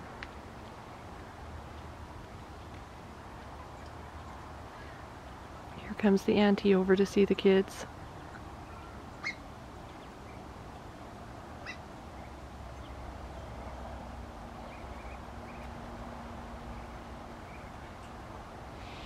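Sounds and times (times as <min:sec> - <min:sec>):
ducklings peeping: 0:08.1 - 0:10.4, 0:11.6 - 0:13.0, 0:14.6 - 0:15.8.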